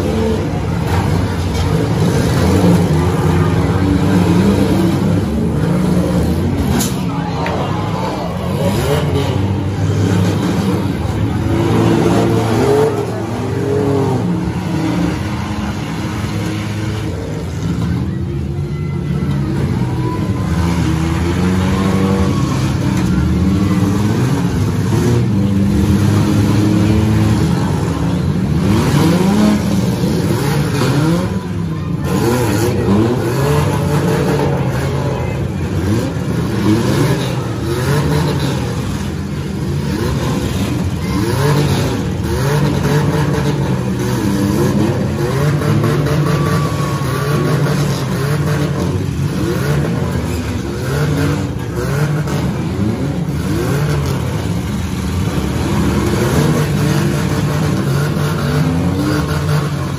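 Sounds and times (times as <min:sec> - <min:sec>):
car engines revving hard: 0:00.0 - 0:59.9.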